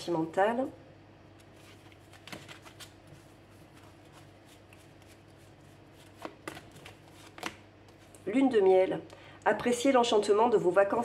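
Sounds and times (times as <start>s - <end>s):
cards shuffled by hand: 1.4s - 8.2s.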